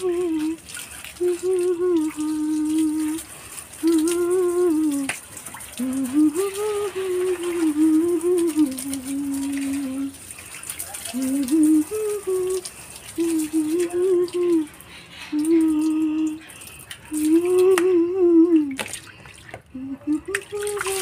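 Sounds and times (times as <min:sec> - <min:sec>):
woman humming: 0:00.0 - 0:00.6, 0:03.8 - 0:05.1, 0:05.8 - 0:10.1, 0:11.2 - 0:14.7, 0:15.3 - 0:16.5, 0:17.1 - 0:18.8, 0:19.7 - 0:21.0
water spraying from garden hose: 0:00.0 - 0:21.0.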